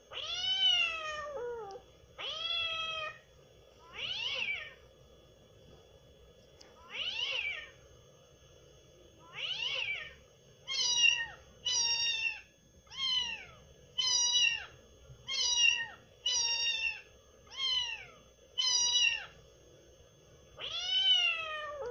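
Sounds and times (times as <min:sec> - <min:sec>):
cat meowing: 0:00.1 - 0:03.2, 0:03.9 - 0:04.8, 0:06.9 - 0:07.7, 0:09.3 - 0:14.7, 0:15.3 - 0:19.4, 0:20.6 - 0:21.9.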